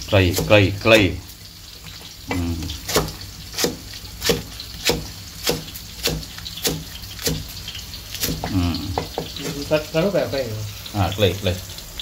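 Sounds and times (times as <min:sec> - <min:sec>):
cleaver chopping on wooden block: 0:02.8 - 0:07.5.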